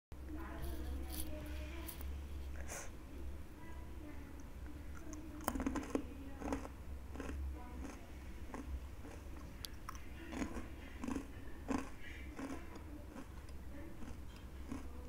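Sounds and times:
fried snacks crackling: 0:00.4 - 0:02.1, 0:05.5 - 0:13.4, 0:14.0 - 0:15.0.

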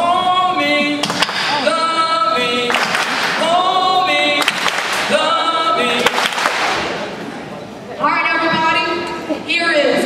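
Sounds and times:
young voices singing in harmony: 0:00.0 - 0:07.0.

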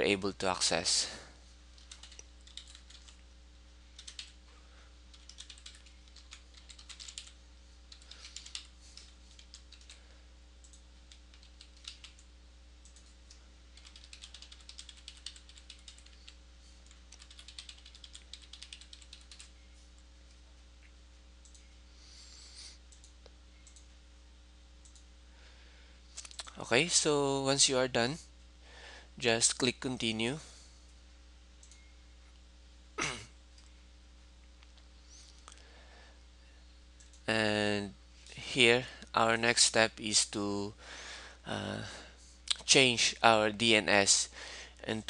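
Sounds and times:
low electrical hum: 0:00.0 - 0:45.0
faint keyboard typing: 0:01.7 - 0:03.3, 0:03.9 - 0:21.8, 0:22.6 - 0:24.0, 0:24.8 - 0:25.1, 0:26.1 - 0:26.6, 0:31.6 - 0:32.4, 0:37.0 - 0:37.3.

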